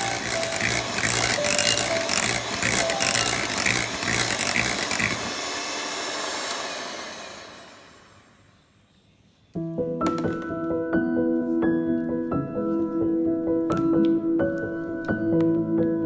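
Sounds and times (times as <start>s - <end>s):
piano music: 0.0s - 4.0s, 9.6s - 16.0s
electric hand mixer whirring: 0.0s - 8.5s.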